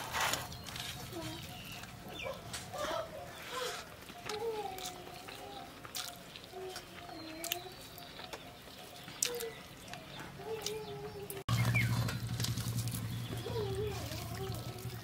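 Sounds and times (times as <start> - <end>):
low wavering animal calls: 13.0 - 15.0.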